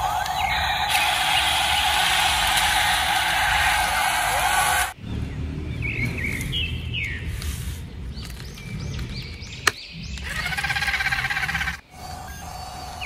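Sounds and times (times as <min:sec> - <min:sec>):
quavering animal-like call: 0:10.2 - 0:13.0.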